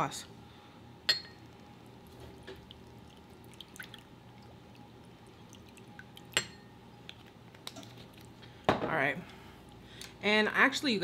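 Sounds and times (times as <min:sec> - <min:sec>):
liquid trickling into glass dish: 0:01.2 - 0:08.3
small drips: 0:01.4 - 0:08.6.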